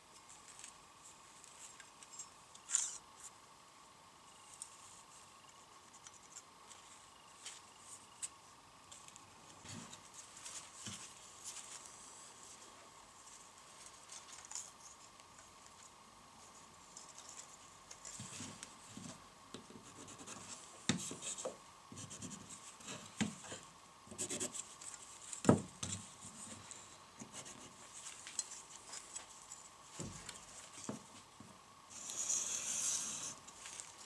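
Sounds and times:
pencil scratching on wood: 19.6 - 24.7, 31.9 - 33.4.

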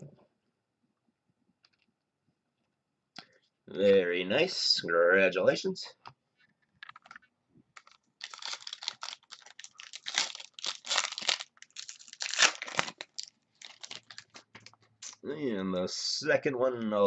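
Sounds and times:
foil wrapper crinkling and tearing: 7.8 - 15.2.

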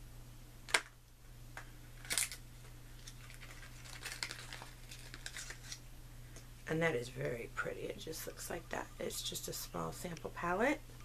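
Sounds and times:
rustling: 2.0 - 5.8
packaging crinkle: 2.0 - 5.9.

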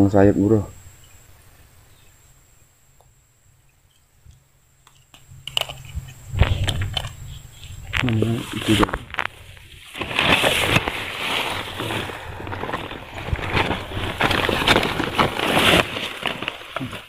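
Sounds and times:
plastic sack rustling and crinkling: 5.4 - 17.0.

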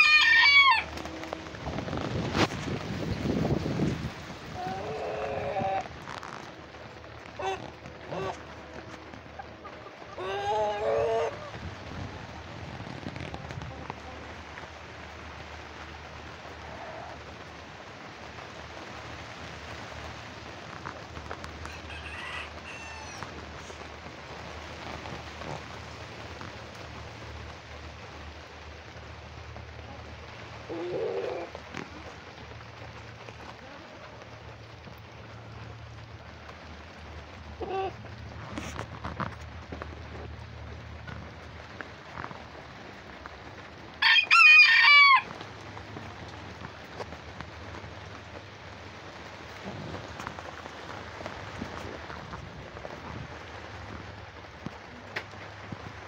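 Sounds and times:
rooster crowing: 0.0 - 1.2, 21.7 - 23.3, 44.0 - 45.4
steady rain falling: 0.0 - 56.0.

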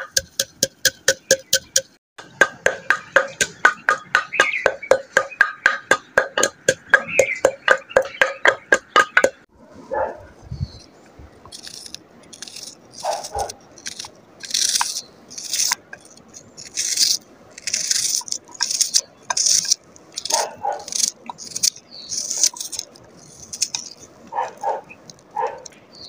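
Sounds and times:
knife crunching through onion: 11.5 - 15.8, 16.4 - 24.7.

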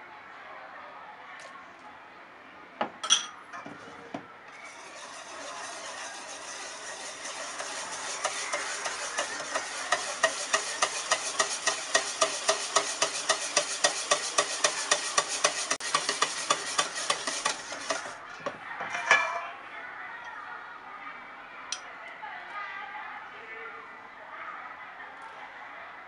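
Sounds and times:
whisk beating in a metal bowl: 4.5 - 18.3.

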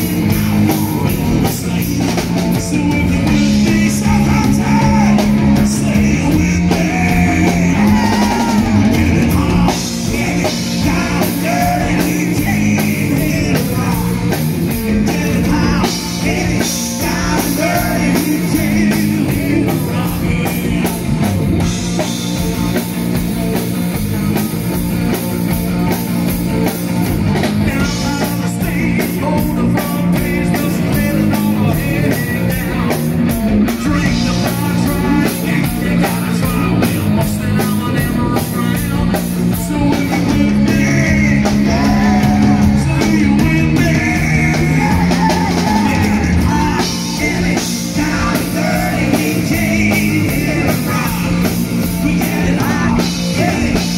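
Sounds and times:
person singing: 0.0 - 21.3, 33.7 - 53.9
bass guitar: 0.0 - 53.9
drum kit: 0.0 - 53.9
electric guitar: 0.0 - 53.9.

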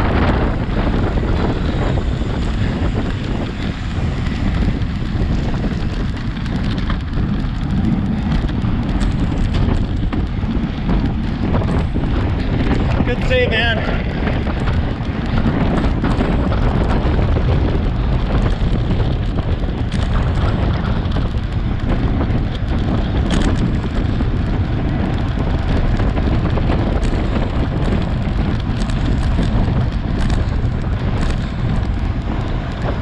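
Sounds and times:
wind buffeting microphone: 0.0 - 33.0
sharp clicks from bike: 0.1 - 33.0.

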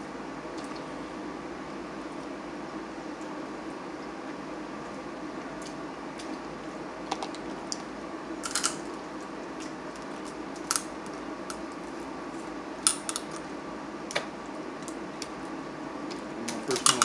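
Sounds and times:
low background hum: 0.0 - 17.0
crab shells cracking: 8.4 - 8.9, 9.6 - 11.8, 12.8 - 13.5.

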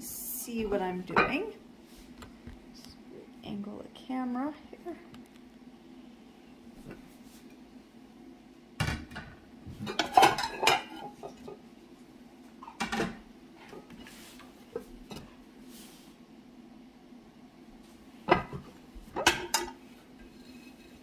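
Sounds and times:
dinner plates clattering: 8.9 - 11.6, 19.2 - 20.5.

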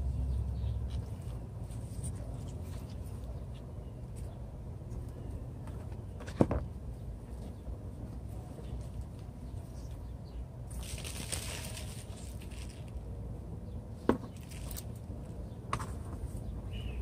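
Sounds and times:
leaves rustling against plastic pot: 10.7 - 13.2, 14.3 - 15.4.

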